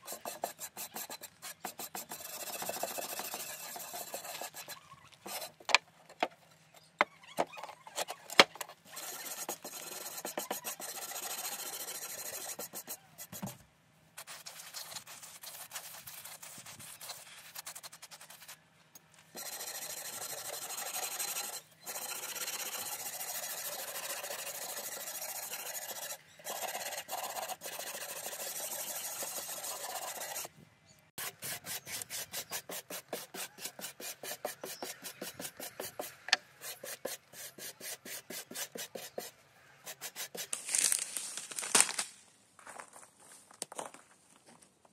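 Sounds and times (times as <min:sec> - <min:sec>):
brush scrubbing metal plate: 0:08.9 - 0:13.0, 0:19.4 - 0:30.5, 0:31.2 - 0:39.3.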